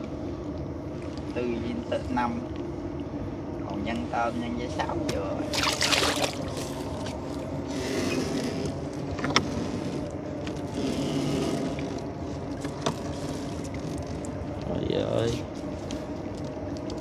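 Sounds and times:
boat engine running: 0:05.4 - 0:17.0.

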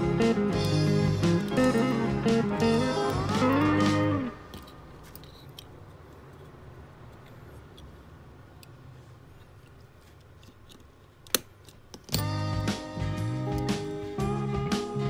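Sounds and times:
screwdriver clicking and scraping metal: 0:00.6 - 0:02.1, 0:02.8 - 0:12.4.

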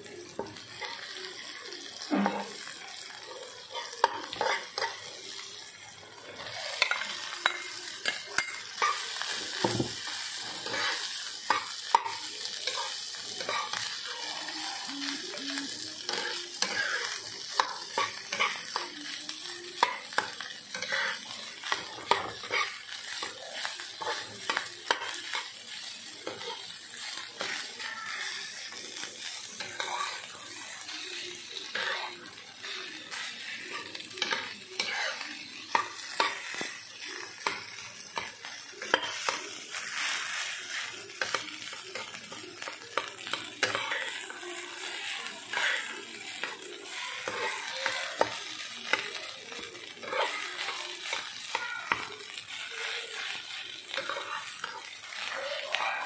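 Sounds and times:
food sizzling in a frying pan: 0:00.0 - 0:56.0
metal spoon scraping a pan: 0:03.7 - 0:05.0, 0:06.3 - 0:13.9, 0:16.1 - 0:18.6, 0:19.8 - 0:23.4, 0:29.6 - 0:30.3, 0:33.1 - 0:36.6, 0:37.4 - 0:49.1, 0:53.2 - 0:55.4.

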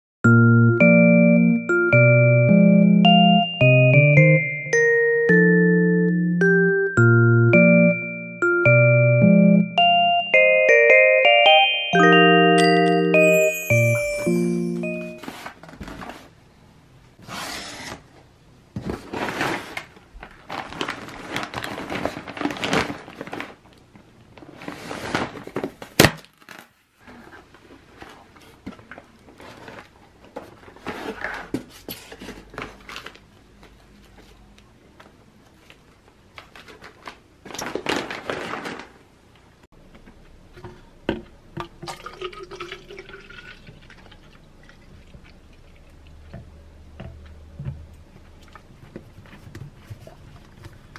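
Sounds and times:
packaging rustling and crinkling: 0:18.8 - 0:23.8, 0:24.4 - 0:33.8, 0:36.4 - 0:39.0
liquid poured into plastic bottle: 0:41.6 - 0:45.8.

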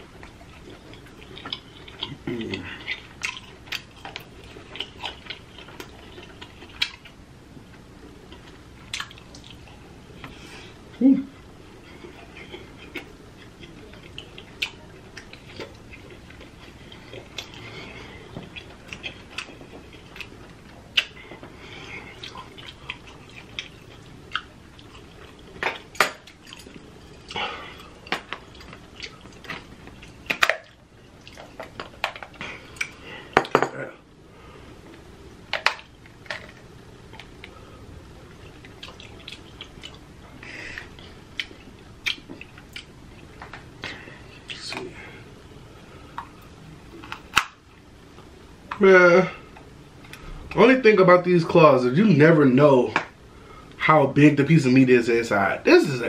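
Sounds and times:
wet smacking and chewing: 0:00.2 - 0:07.2, 0:08.2 - 0:10.3, 0:11.8 - 0:33.0, 0:38.2 - 0:44.8.

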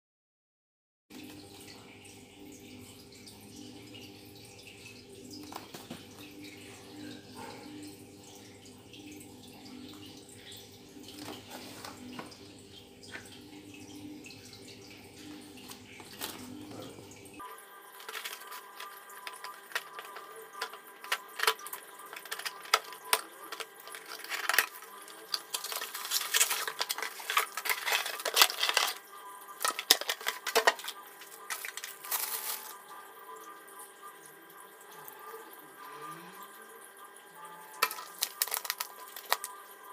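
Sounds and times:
low steady hum: 0:01.1 - 0:39.9
plastic bags crinkling: 0:17.9 - 0:32.8, 0:37.8 - 0:39.6
clicks and clatter of unpacking: 0:18.0 - 0:29.0, 0:29.6 - 0:32.7, 0:37.8 - 0:39.5.

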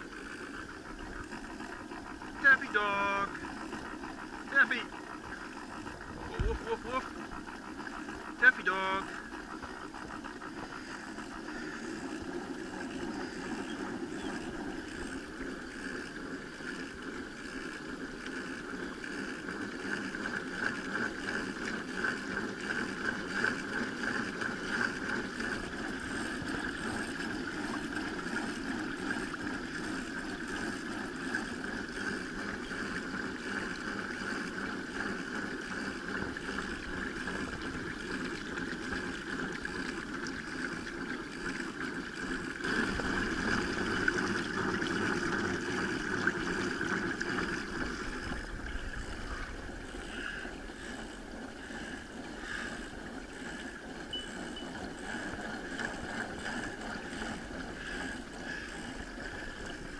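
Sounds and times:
water rushing along kayak hull: 0:00.0 - 0:59.9.

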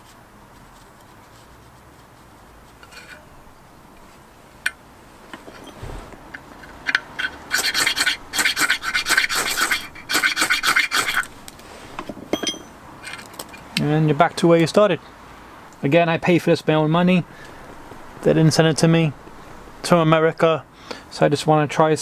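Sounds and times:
faint scratching of rope: 0:00.0 - 0:03.4, 0:05.2 - 0:06.4, 0:07.5 - 0:12.0
steel striker scraping ferro rod: 0:02.8 - 0:03.3, 0:05.3 - 0:12.1.

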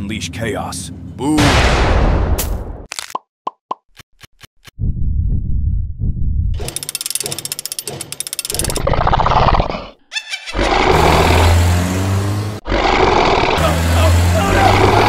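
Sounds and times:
fast clicking rattle: 0:06.6 - 0:08.9
dinosaur roar and deep growl: 0:08.6 - 0:10.0, 0:10.6 - 0:11.8, 0:12.6 - 0:15.0.

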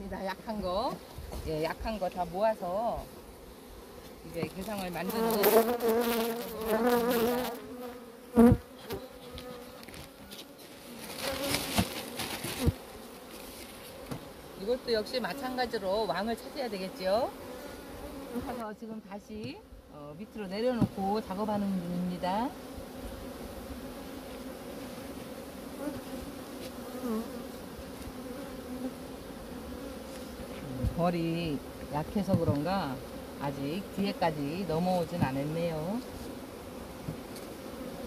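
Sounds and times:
honey bees buzzing: 0:00.0 - 0:38.0.

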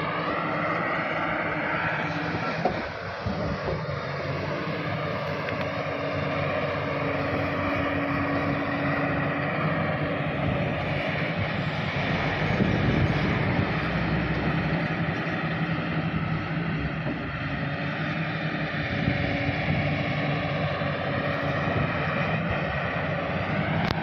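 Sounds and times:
excavator engine drone: 0:00.0 - 0:24.0
wind buffeting microphone: 0:09.0 - 0:15.2, 0:16.0 - 0:17.6, 0:18.7 - 0:24.0.

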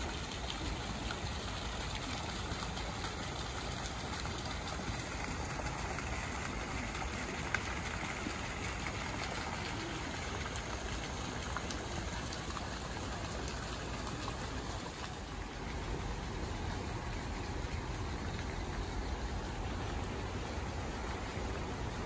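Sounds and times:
fountain splashing into pool: 0:00.0 - 0:22.0.

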